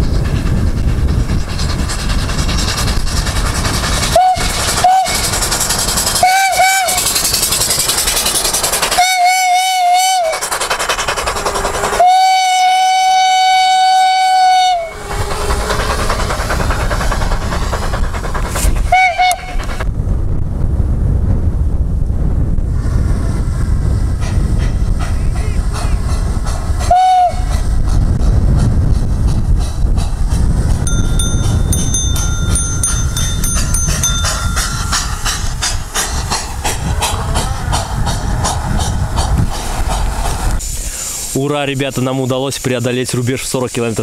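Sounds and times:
steady rushing noise: 0:00.0 - 0:09.2, 0:14.8 - 0:44.0
steam whistle toots: 0:04.1 - 0:05.3, 0:06.2 - 0:07.1, 0:09.0 - 0:10.4, 0:12.0 - 0:15.2, 0:18.9 - 0:19.6, 0:26.9 - 0:27.6.

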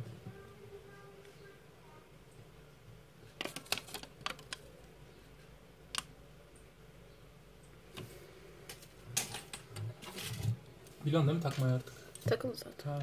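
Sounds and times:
paper leaflet crackling: 0:03.4 - 0:04.7.

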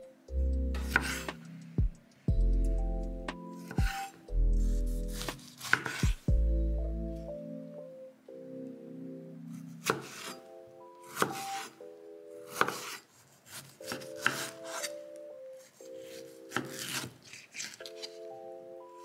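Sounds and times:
light background music: 0:00.0 - 0:19.0
knife chopping on wooden board: 0:00.9 - 0:01.3, 0:05.1 - 0:06.2, 0:09.8 - 0:10.3, 0:11.2 - 0:11.7, 0:12.5 - 0:14.9, 0:16.5 - 0:17.7.

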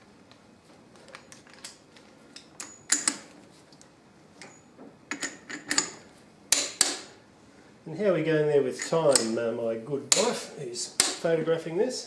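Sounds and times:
metal tools clicking and clinking: 0:01.1 - 0:03.3, 0:04.4 - 0:07.0.

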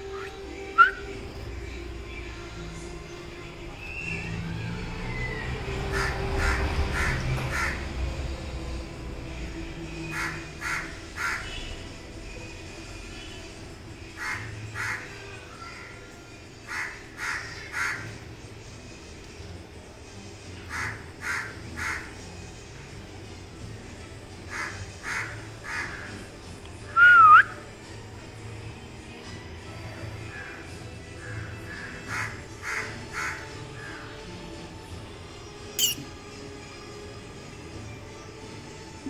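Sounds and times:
crows cawing: 0:05.9 - 0:07.8, 0:10.1 - 0:11.6, 0:14.2 - 0:15.2, 0:16.7 - 0:18.2, 0:20.7 - 0:22.1, 0:24.5 - 0:26.2, 0:31.2 - 0:34.1.

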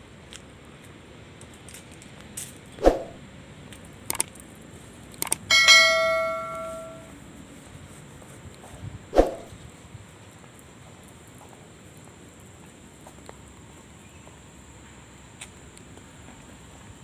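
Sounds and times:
light clicks: 0:03.7 - 0:04.4, 0:05.1 - 0:05.5
metallic bell-like ring: 0:05.5 - 0:07.1.

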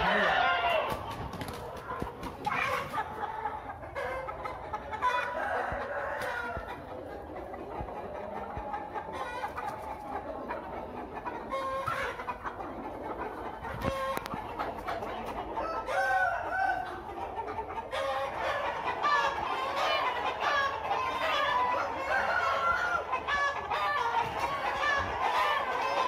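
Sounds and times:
chickens clucking: 0:00.0 - 0:26.0.

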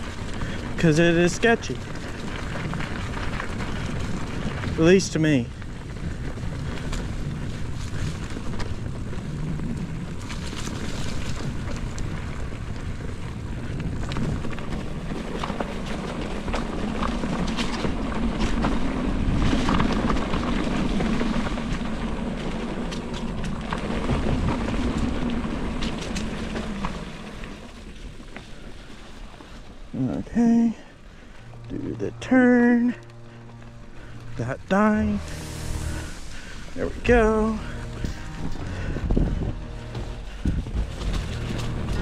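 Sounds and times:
wind buffeting microphone: 0:00.0 - 0:30.0, 0:32.3 - 0:42.0
bike rattling over bumps: 0:00.0 - 0:35.1, 0:36.4 - 0:42.0
bike tyres on dirt trail: 0:00.0 - 0:42.0
crunching leaves: 0:00.0 - 0:42.0
low hum: 0:29.3 - 0:42.0.

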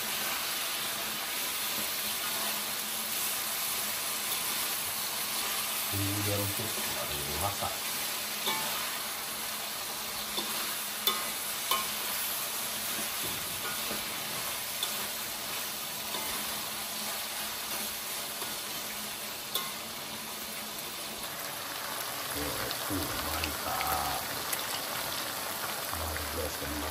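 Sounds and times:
meat sizzling in a wok: 0:00.0 - 0:26.9
utensils clicking on pan: 0:08.4 - 0:09.1, 0:09.8 - 0:20.2.

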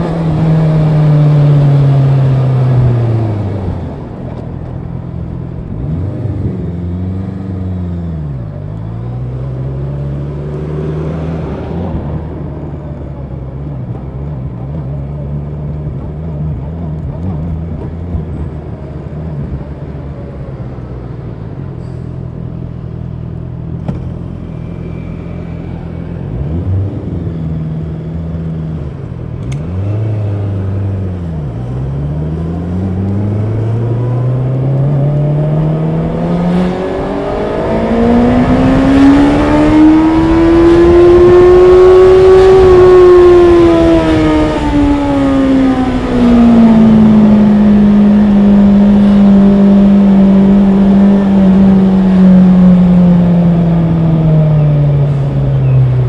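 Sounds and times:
motorcycle engine accelerating: 0:22.2 - 0:56.0.

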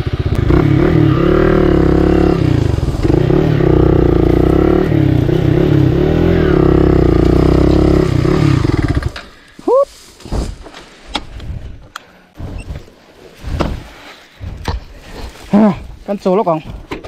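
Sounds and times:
motorcycle engine revving: 0:00.0 - 0:09.2.

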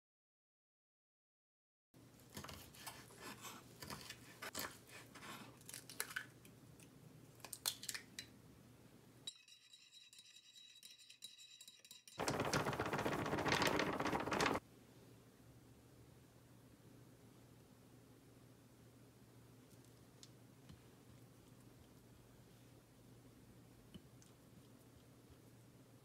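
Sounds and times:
frying mix pouring from bag: 0:12.2 - 0:14.6.

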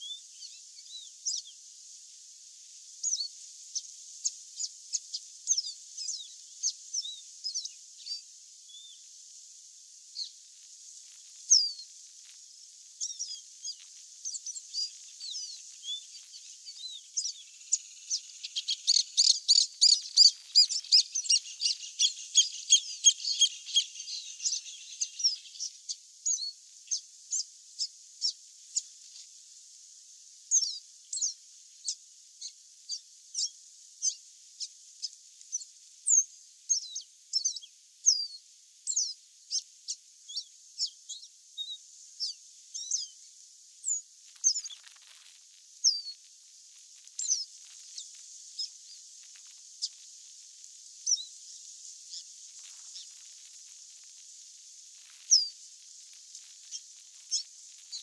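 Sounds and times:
bird singing whistled notes: 0:00.0 - 0:01.6, 0:03.0 - 0:09.1, 0:11.5 - 0:11.9, 0:13.0 - 0:28.9, 0:30.5 - 0:43.2, 0:43.8 - 0:44.8, 0:45.8 - 0:46.2, 0:47.2 - 0:48.0, 0:51.0 - 0:52.3, 0:55.3 - 0:55.6, 0:56.6 - 0:58.0.

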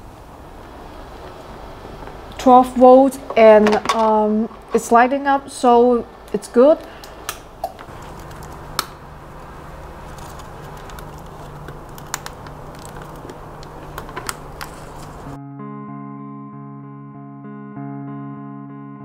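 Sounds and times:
steady low hum: 0:00.0 - 0:15.4
clicks and rustling of led strip: 0:06.3 - 0:15.4
guitar music: 0:15.2 - 0:19.0.

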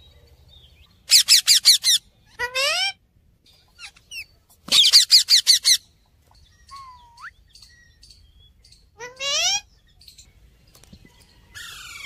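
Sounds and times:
parakeets chirping: 0:01.1 - 0:02.8, 0:03.7 - 0:05.9, 0:06.6 - 0:10.3.

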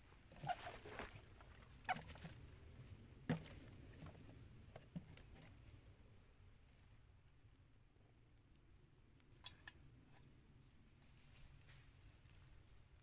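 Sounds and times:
soft rustle: 0:00.0 - 0:06.9, 0:10.8 - 0:13.0.

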